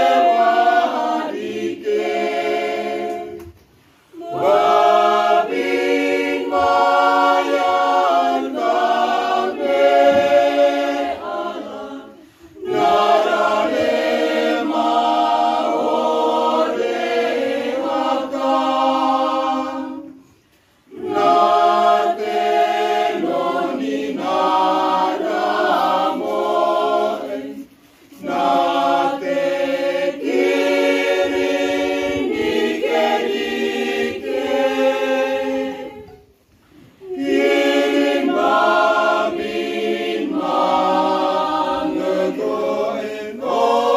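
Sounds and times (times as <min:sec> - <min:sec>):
mixed choir singing unaccompanied: 0:00.0 - 0:43.9.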